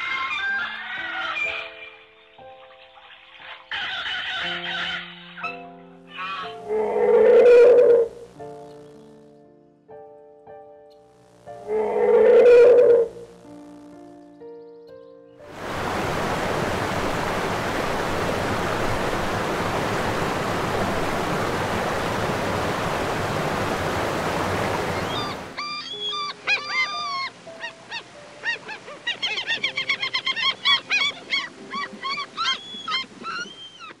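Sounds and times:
waterfowl honking: 0:00.0 - 0:08.1, 0:21.2 - 0:34.0
soft piano notes: 0:04.5 - 0:15.7
steady rushing noise: 0:15.5 - 0:25.6.

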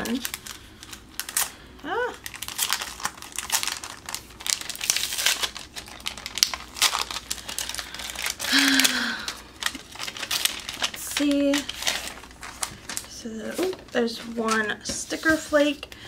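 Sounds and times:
paper envelope crinkling: 0:00.0 - 0:01.6, 0:02.2 - 0:15.9.

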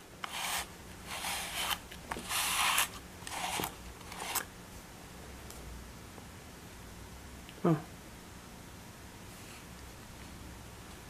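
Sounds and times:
brush stroking through cat fur: 0:00.2 - 0:04.4.

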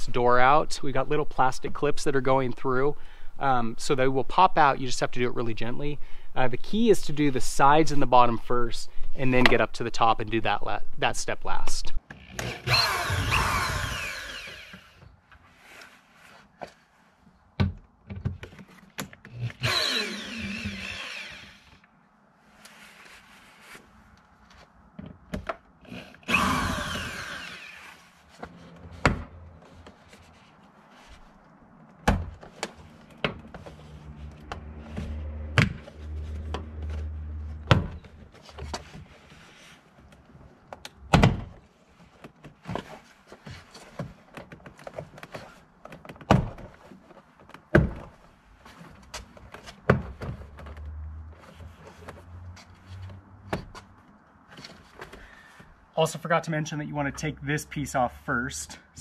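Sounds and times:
power drill driving screws: 0:12.3 - 0:15.0, 0:19.4 - 0:21.8, 0:25.9 - 0:28.1.

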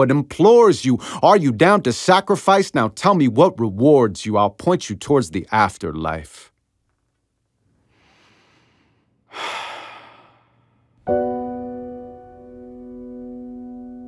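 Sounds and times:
person breathing: 0:01.0 - 0:01.2, 0:07.8 - 0:11.0
piano chord ringing: 0:11.1 - 0:14.0.

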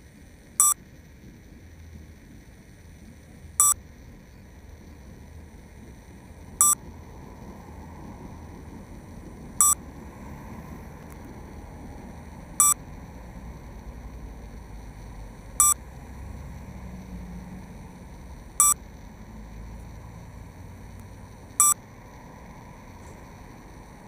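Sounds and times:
city traffic noise: 0:04.6 - 0:24.0
short electronic beep: 0:09.6 - 0:09.8, 0:18.6 - 0:18.8.

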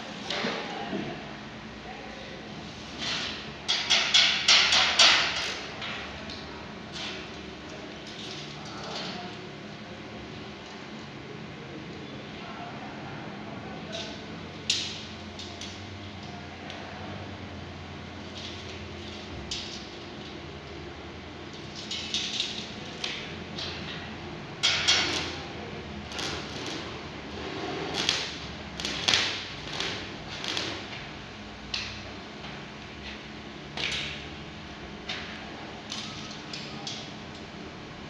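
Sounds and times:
steady low hum: 0:00.0 - 0:38.0
arc welder crackling bursts: 0:21.4 - 0:32.0.

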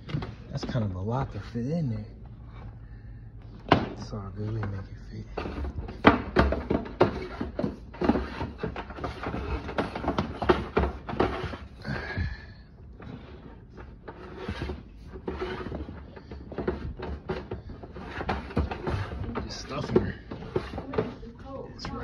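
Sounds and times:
hose rustling and scraping on tank: 0:13.0 - 0:22.0.

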